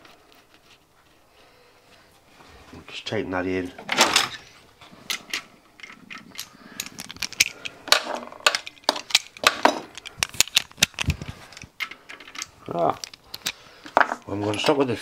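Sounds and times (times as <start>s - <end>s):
metal sockets clinking: 5.1s - 14.8s.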